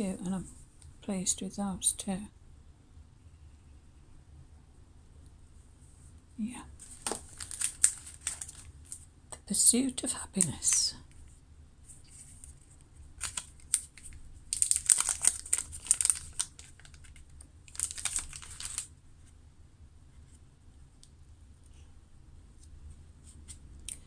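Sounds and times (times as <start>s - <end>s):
cellophane crinkling: 6.8s - 9.0s, 12.0s - 18.9s.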